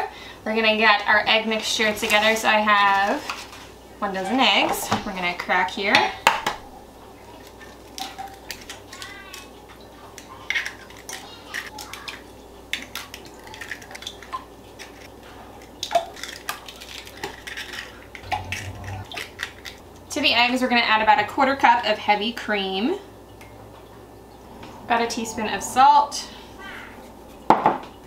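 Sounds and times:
eggshells cracking: 0:10.2 - 0:19.8.

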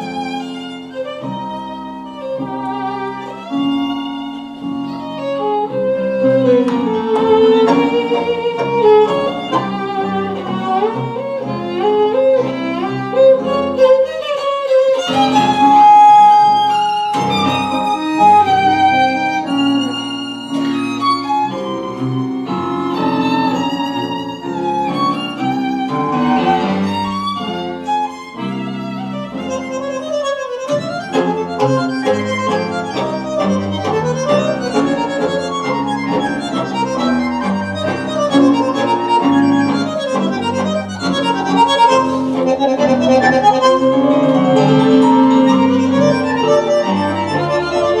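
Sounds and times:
double bass: 0:00.0 - 0:13.8, 0:30.7 - 0:48.0
bandoneon: 0:00.0 - 0:48.0
piano: 0:00.0 - 0:48.0
violin: 0:00.0 - 0:48.0.

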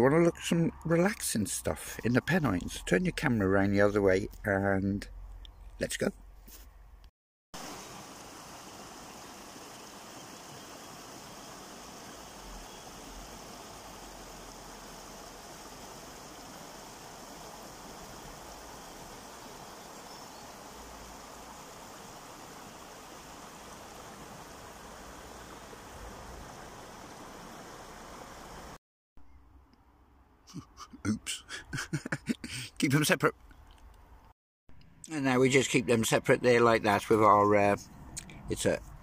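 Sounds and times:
river water rushing: 0:07.6 - 0:28.8.

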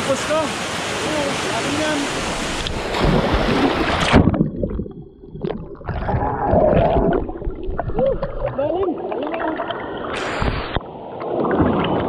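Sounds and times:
waterfall roar: 0:00.0 - 0:02.8
underwater gurgling and bubbling: 0:02.2 - 0:12.0.

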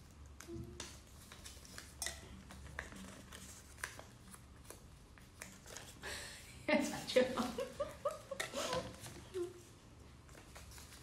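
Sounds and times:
paper crinkling: 0:00.0 - 0:06.0, 0:10.2 - 0:11.0
faint low room hum: 0:00.0 - 0:11.0.

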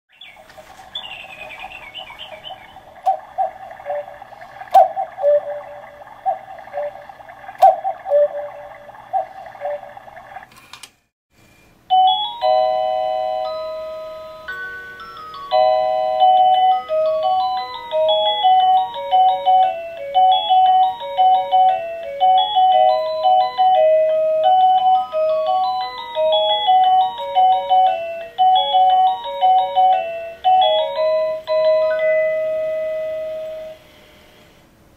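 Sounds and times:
bell-like clock melody: 0:11.9 - 0:33.8.

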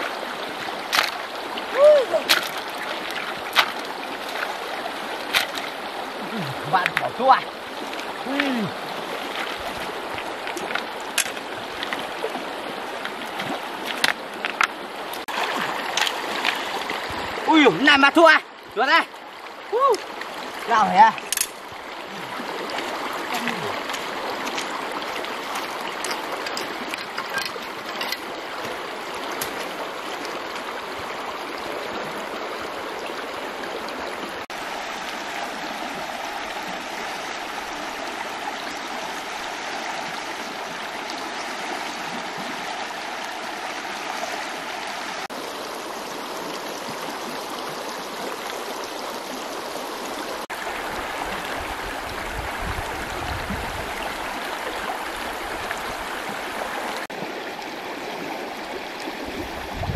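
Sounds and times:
river water running over stones: 0:00.0 - 0:59.9.

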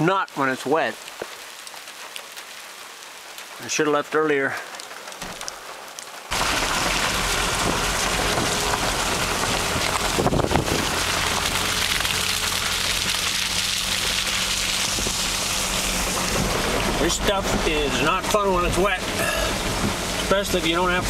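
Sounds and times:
rain and wet tyres hissing: 0:00.0 - 0:21.0
low truck engine hum: 0:06.3 - 0:21.0.

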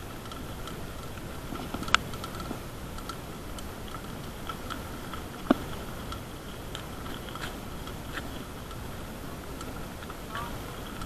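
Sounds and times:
mountain bike rattling on rough road: 0:00.0 - 0:11.0
faint steady high tone: 0:06.1 - 0:11.0.

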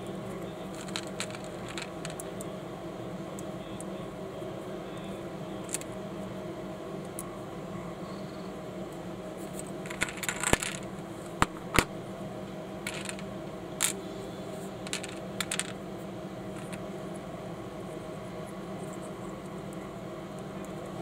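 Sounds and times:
plastic bricks clicking: 0:00.8 - 0:02.3, 0:09.9 - 0:11.9, 0:12.9 - 0:13.2, 0:14.9 - 0:15.7, 0:16.6 - 0:16.8.

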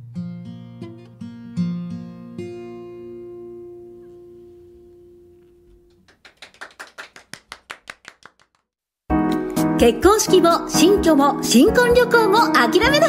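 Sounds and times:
acoustic guitar chord ringing: 0:00.0 - 0:05.9
quick hand claps: 0:05.9 - 0:08.7.

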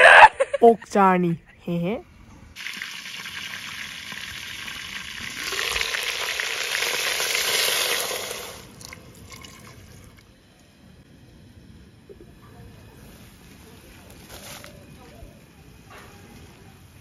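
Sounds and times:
meat sizzling in a pot: 0:02.6 - 0:09.3
water poured onto hot meat: 0:02.6 - 0:10.2.

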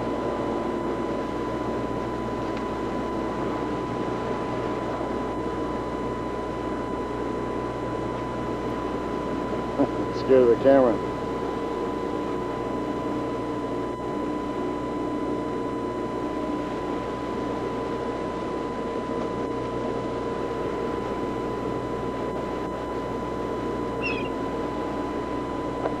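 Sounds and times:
boat engine hum: 0:00.0 - 0:10.4, 0:16.0 - 0:26.0.

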